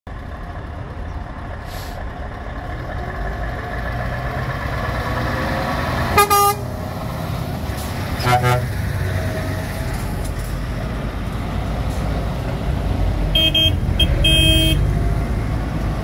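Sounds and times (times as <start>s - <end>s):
diesel lorry engines rumbling: 0.1s - 16.0s
lorry horn blasts: 6.2s - 6.7s, 8.2s - 8.8s, 13.4s - 14.8s.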